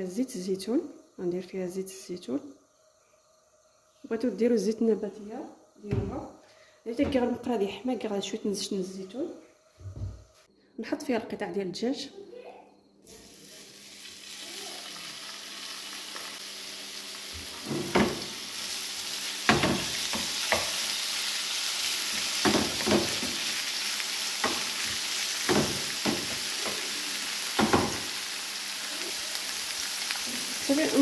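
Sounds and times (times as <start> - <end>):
chicken sizzling in frying pan: 13.1 - 31.0.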